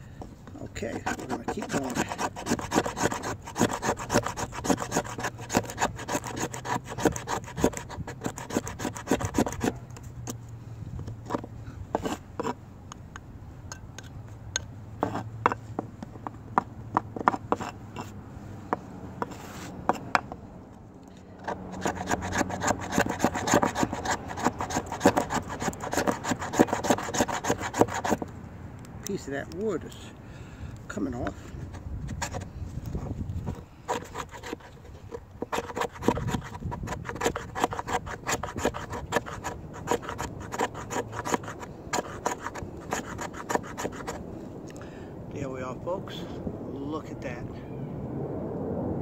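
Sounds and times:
knife scraping wood shavings: 0.5 - 10.4, 11.2 - 12.6, 17.2 - 18.2, 21.4 - 28.3, 30.9 - 44.2.

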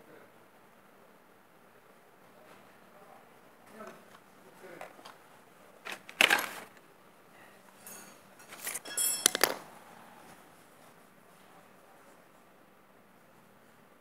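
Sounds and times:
sharp clicks of metal parts: 7.8 - 9.6
metal clinks and clatter: 7.8 - 9.7.

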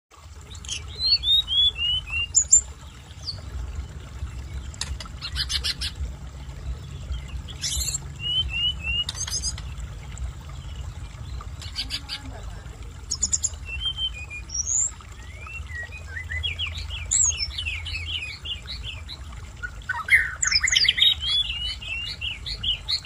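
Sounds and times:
low rumble: 2.6 - 14.5.

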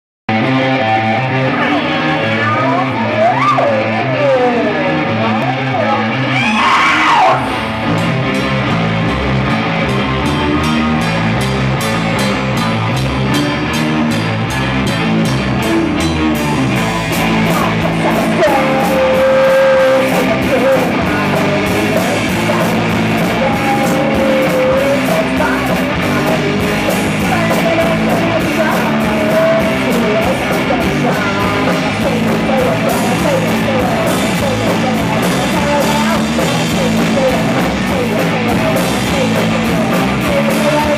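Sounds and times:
bass guitar: 0.3 - 40.9
electric guitar: 0.3 - 40.9
drum kit beat: 5.4 - 40.9
woman singing: 17.2 - 40.9.

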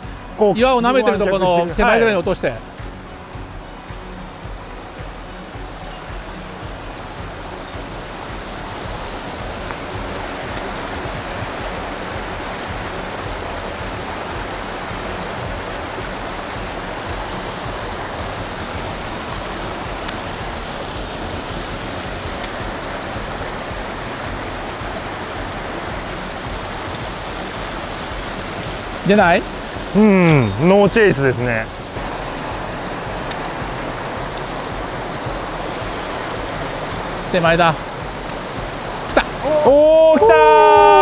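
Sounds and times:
stream flowing over rocks: 0.0 - 41.0
faint sharp ticks: 10.5 - 10.7.

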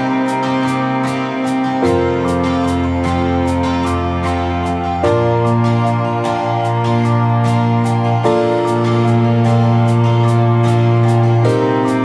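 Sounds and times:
gentle instrumental music: 0.0 - 12.0.

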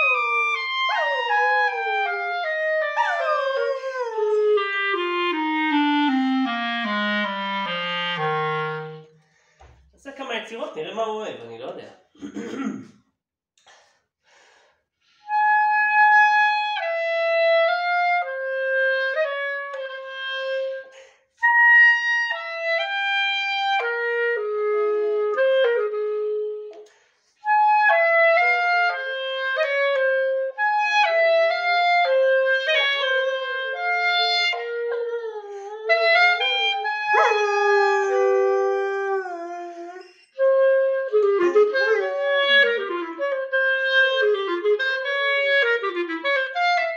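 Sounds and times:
dog howling: 0.0 - 4.6, 34.6 - 40.4, 41.4 - 42.8
clarinet melody: 0.0 - 9.2, 15.2 - 46.9.

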